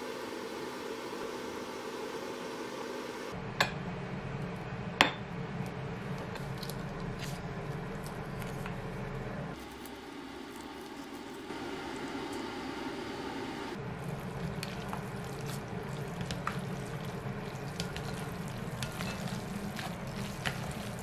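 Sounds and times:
spoon squishing thick paste: 13.9s - 21.0s.

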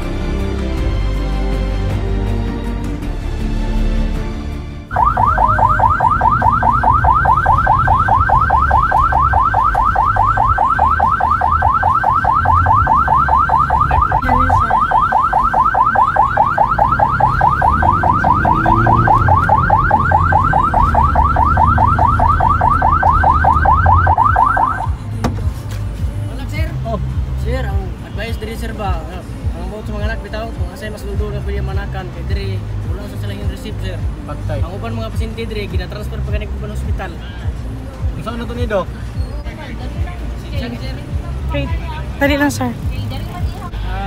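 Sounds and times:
electronic siren sweeping: 4.9s - 24.9s.

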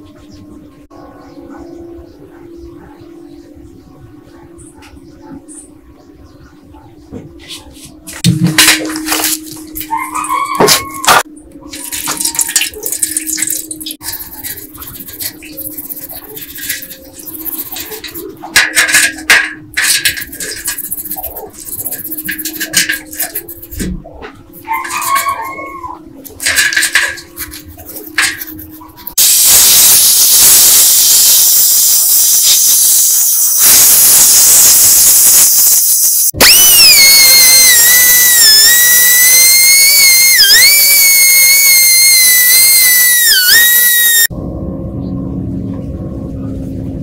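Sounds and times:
toothbrush scrubbing in water: 11.7s - 23.8s, 26.3s - 44.2s
compressed air blow gun hiss: 29.2s - 44.3s
die grinder whining: 29.2s - 44.3s.

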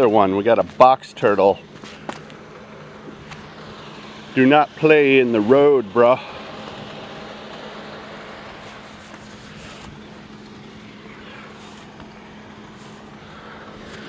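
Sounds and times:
outdoor background noise: 0.0s - 14.0s
vehicle engine hum: 0.0s - 14.0s
faint rustles: 8.6s - 14.0s.

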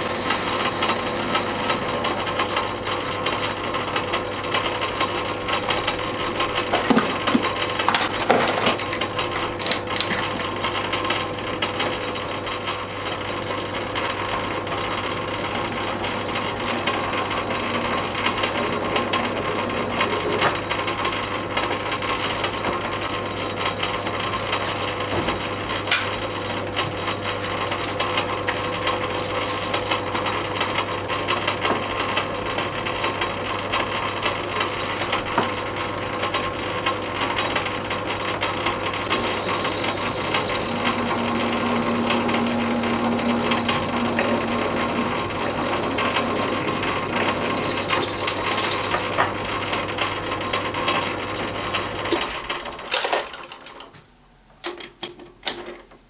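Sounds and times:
lathe motor hum: 0.0s - 6.8s, 13.9s - 21.0s, 38.9s - 52.1s
drill boring into metal: 15.7s - 20.3s, 39.0s - 49.3s.

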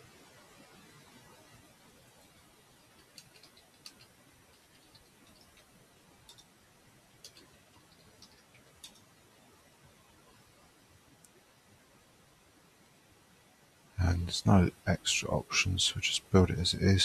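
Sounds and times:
computer keyboard keystrokes: 3.0s - 5.7s, 6.3s - 6.5s, 7.2s - 9.1s.

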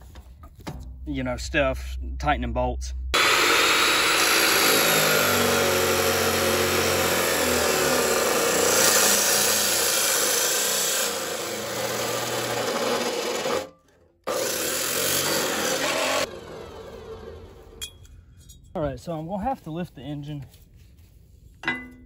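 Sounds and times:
chop saw grinding through steel: 3.2s - 18.0s.

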